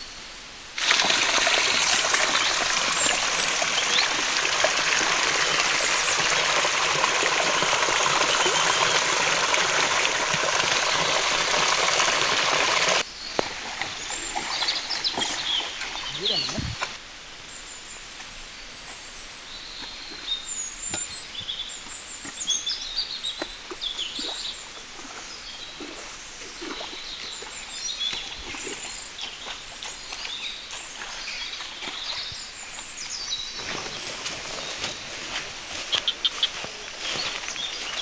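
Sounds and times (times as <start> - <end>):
outdoor background hiss: 0.0 - 3.4, 13.0 - 26.4
small birds chirping: 1.0 - 17.0, 18.8 - 38.0.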